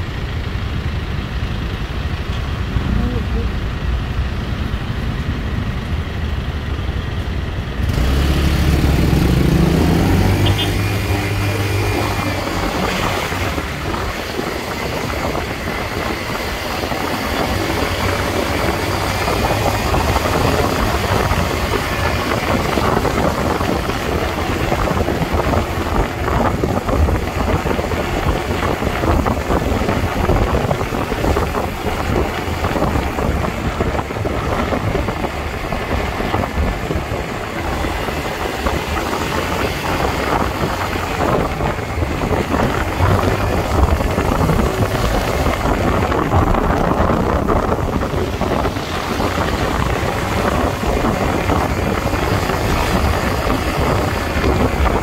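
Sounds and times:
road and traffic noise: 0.0 - 55.0
wind rushing over microphone: 0.8 - 55.0.

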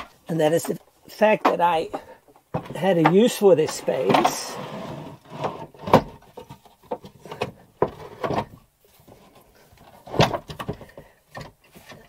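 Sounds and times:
drawer rubbing as it slides: 4.0 - 6.1.

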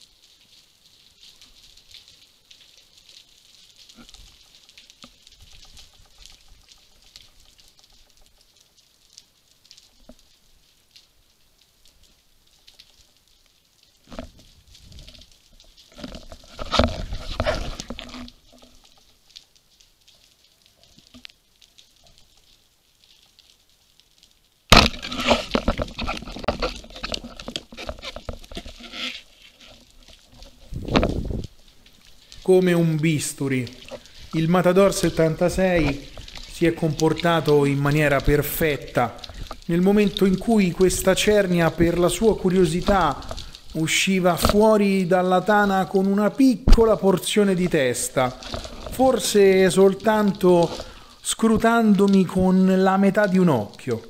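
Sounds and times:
underwater crackle of clicks: 0.2 - 52.4
speargun firing underwater: 24.7 - 25.5.

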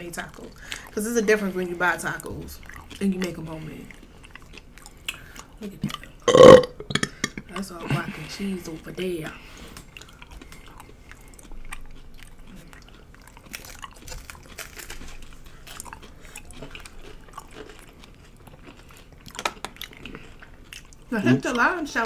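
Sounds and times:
crunching taco shells: 9.4 - 21.1.

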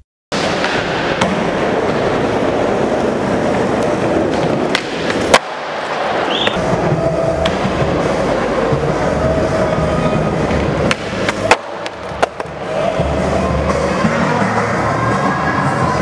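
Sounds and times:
skateboard wheels rolling: 0.4 - 16.0
skateboard landing slap: 4.3 - 6.6, 10.8 - 12.6.

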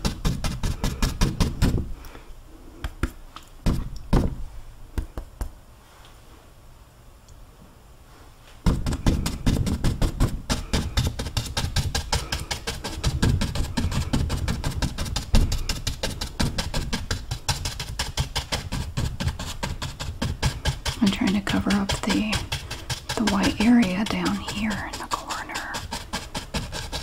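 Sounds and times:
paintbrush scrubbing on canvas: 8.1 - 27.0.

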